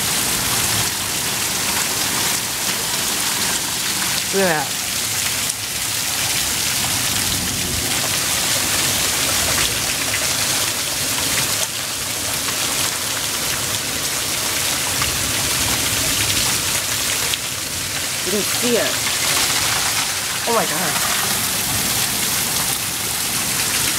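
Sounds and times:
hail clattering on ground: 7.8s - 23.9s
hailstones clicking: 17.9s - 23.9s.

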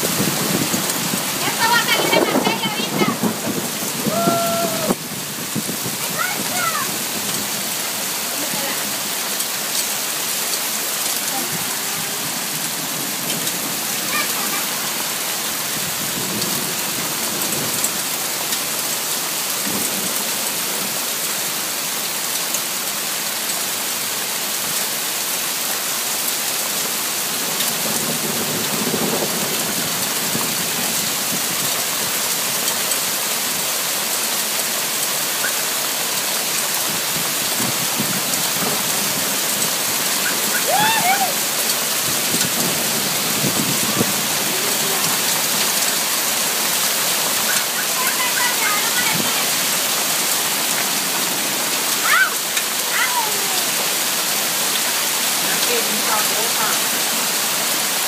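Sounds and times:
hard rain pouring: 0.0s - 58.0s.

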